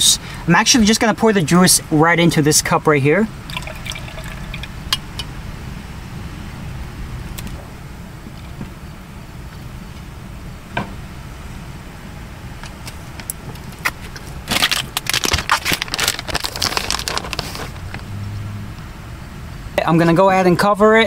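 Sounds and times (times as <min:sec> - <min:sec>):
plastic bag crinkling: 0:14.2 - 0:18.0
low rumble: 0:15.9 - 0:19.8.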